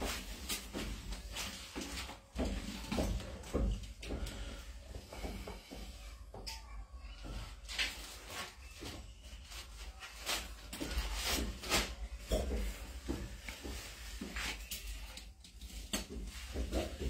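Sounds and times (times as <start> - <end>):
plastic cups being handled: 7.2 - 17.0.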